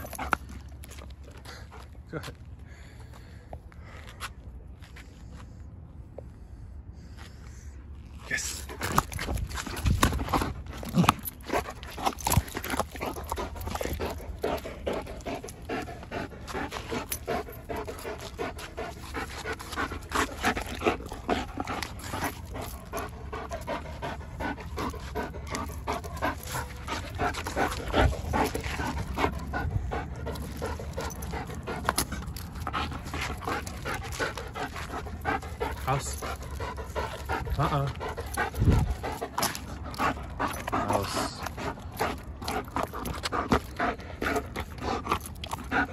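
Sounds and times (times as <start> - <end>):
dog panting: 0.0 - 2.0, 8.6 - 45.9
knocks and scuffs of rope toy: 8.5 - 14.4.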